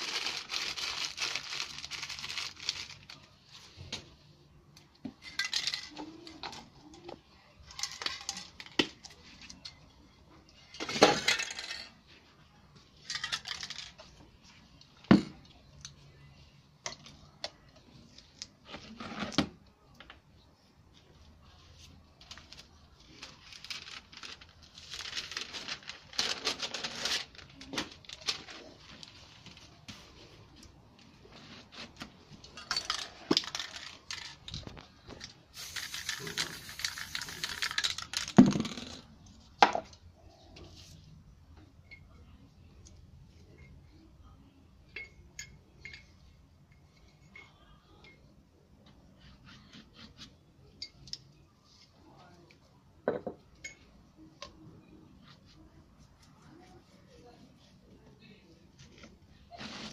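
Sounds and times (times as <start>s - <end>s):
spray paint cans hissing: 35.5s - 38.4s.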